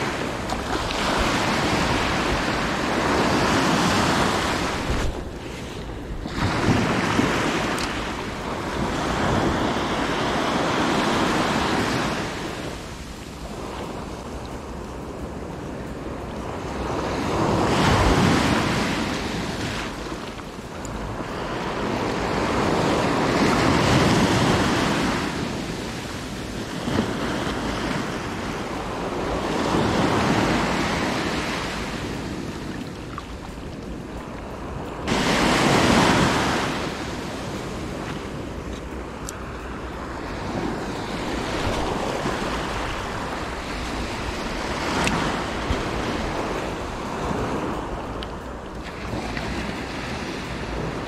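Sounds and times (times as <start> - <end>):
small waves breaking on shore: 0.0 - 51.0
wind buffeting microphone: 0.0 - 51.0.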